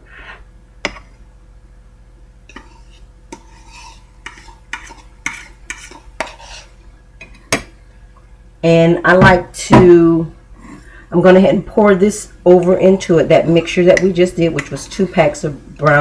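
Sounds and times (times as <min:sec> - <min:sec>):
metal spoon scraping a pot: 0:02.5 - 0:06.8.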